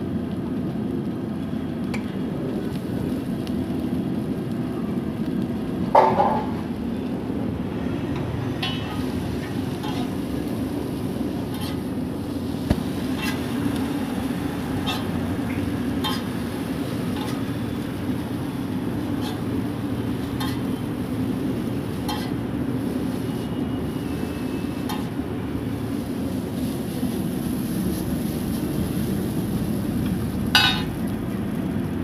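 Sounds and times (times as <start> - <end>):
steady low rumble: 6.6 - 22.8
metal utensils scraping on griddle: 8.6 - 10.4, 11.4 - 12.0, 13.0 - 13.6, 14.8 - 17.7, 18.8 - 20.8, 21.8 - 22.9, 24.6 - 25.2, 30.6 - 30.9.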